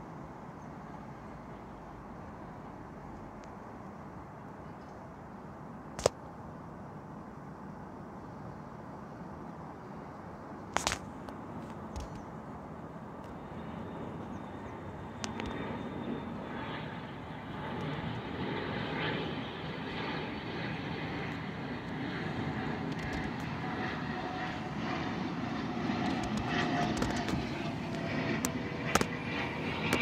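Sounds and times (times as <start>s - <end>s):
jet engines rushing: 10.5s - 30.0s.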